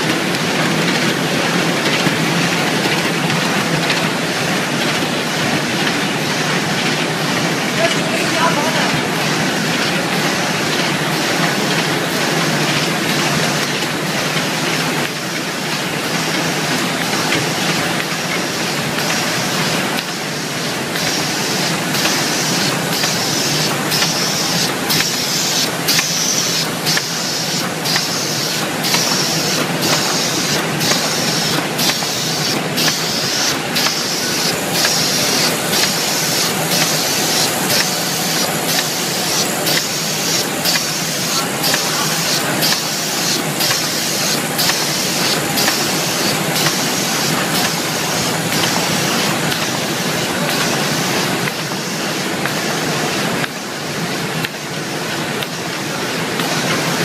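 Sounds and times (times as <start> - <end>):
machine rollers clattering: 0.0 - 57.0
regular machine stroke: 21.0 - 51.6.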